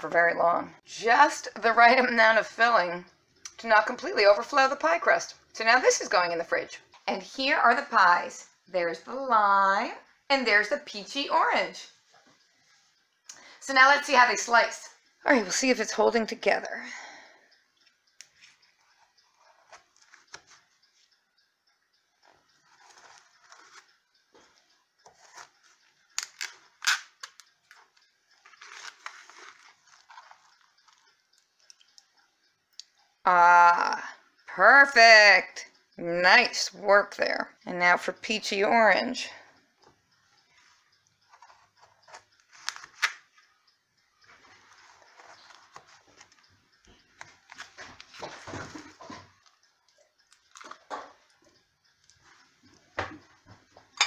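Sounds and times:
knife scraping and crunching crust: 0:28.4 - 0:31.0.

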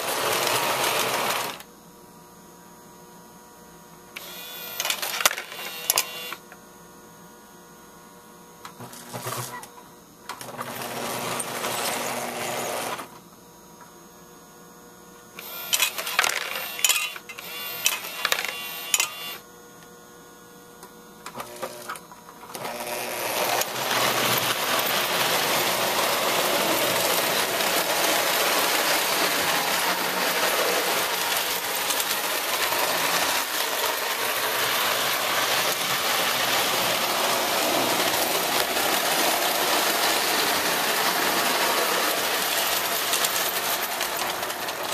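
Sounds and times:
toy train whirring on track: 0:00.0 - 0:01.7, 0:04.2 - 0:06.4, 0:10.3 - 0:13.1, 0:15.4 - 0:19.4, 0:21.3 - 0:44.9
toy motor running: 0:04.2 - 0:06.4, 0:15.4 - 0:19.4, 0:22.5 - 0:44.9.

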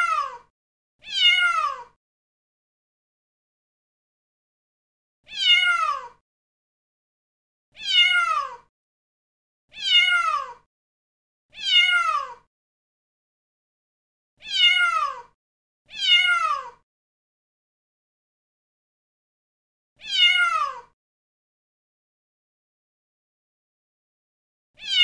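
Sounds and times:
cat meowing: 0:00.0 - 0:02.0, 0:05.3 - 0:06.2, 0:07.8 - 0:08.7, 0:09.7 - 0:10.7, 0:11.5 - 0:12.5, 0:14.4 - 0:16.8, 0:20.0 - 0:21.0, 0:24.8 - 0:25.0.

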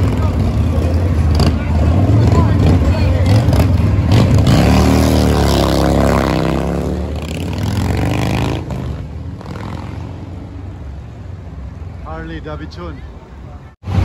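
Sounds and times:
motorcycle engine revving: 0:00.0 - 0:10.6
street traffic: 0:00.0 - 0:14.0.

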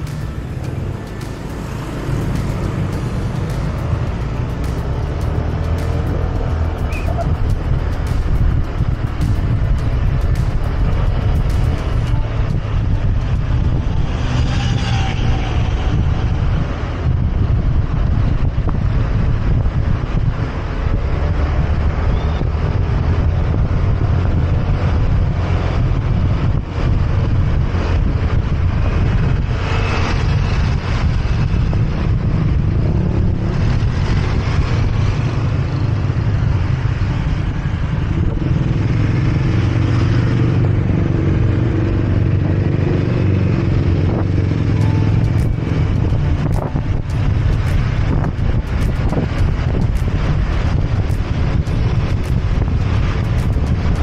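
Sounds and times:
motorcycle engine running: 0:00.0 - 0:15.3, 0:30.3 - 0:54.0
road noise: 0:00.0 - 0:54.0
wind rumble on microphone: 0:00.0 - 0:54.0.

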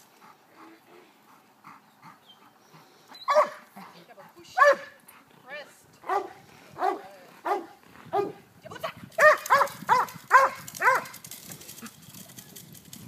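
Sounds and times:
dog barking: 0:03.3 - 0:03.6, 0:04.6 - 0:05.0, 0:06.0 - 0:08.4, 0:09.2 - 0:11.1.

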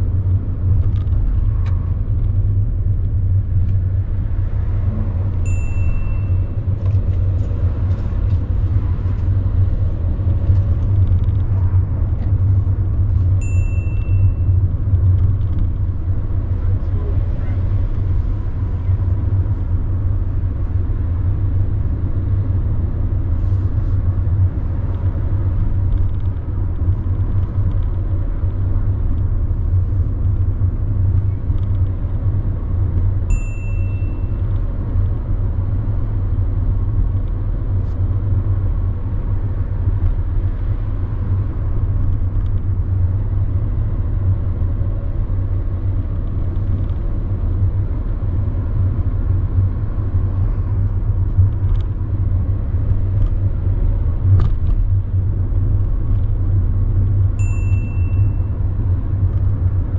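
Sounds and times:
car cabin road and engine rumble: 0:00.0 - 0:59.9
brief high beep: 0:05.5 - 0:06.5, 0:13.4 - 0:14.5, 0:57.4 - 0:58.5.

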